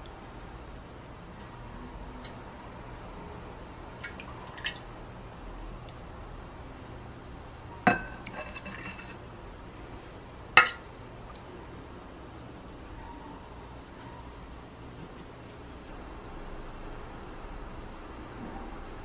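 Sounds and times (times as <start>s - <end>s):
ladle clinking on glass bowl: 7.9s - 9.2s, 10.6s - 10.8s.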